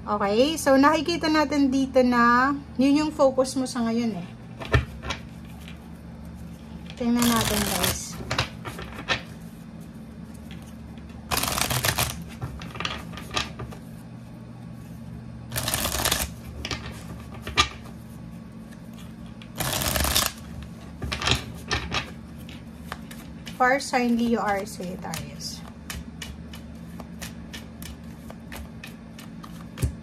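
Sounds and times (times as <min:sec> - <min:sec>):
faint steady hum: 0:00.0 - 0:30.0
cards being shuffled: 0:04.6 - 0:13.9, 0:15.5 - 0:30.0
cards tapping and clicking: 0:07.2 - 0:09.2, 0:11.3 - 0:13.6, 0:15.5 - 0:17.8, 0:19.5 - 0:23.6, 0:24.2 - 0:30.0.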